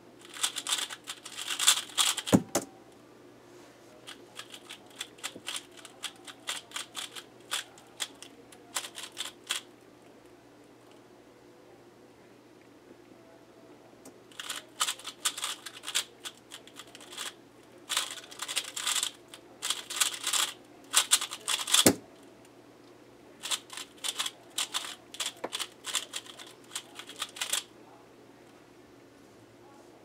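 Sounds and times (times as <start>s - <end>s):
puzzle cube plastic clicking: 0.2s - 2.7s, 4.1s - 9.6s, 14.3s - 17.3s, 17.9s - 22.0s, 23.4s - 27.6s.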